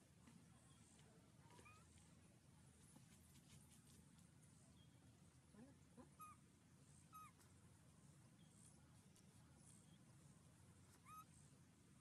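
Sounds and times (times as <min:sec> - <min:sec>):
young monkey squeaky calls: 0:06.1 - 0:06.4, 0:07.1 - 0:07.4, 0:11.0 - 0:11.4.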